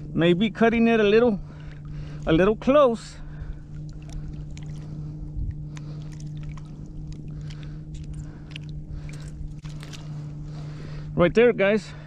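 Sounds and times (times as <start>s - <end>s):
low steady hum: 0.0s - 12.0s
water splashes and drips: 3.7s - 5.0s, 5.7s - 10.1s
small wet clicks: 3.7s - 10.3s.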